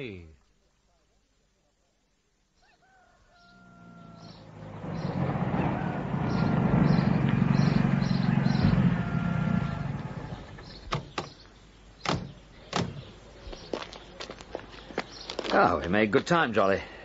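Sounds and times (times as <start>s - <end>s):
car engine running: 4.5s - 10.7s.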